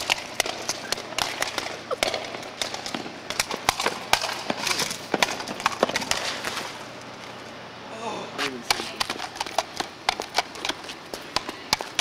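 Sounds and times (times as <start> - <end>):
running footsteps on asphalt: 8.7 - 12.0.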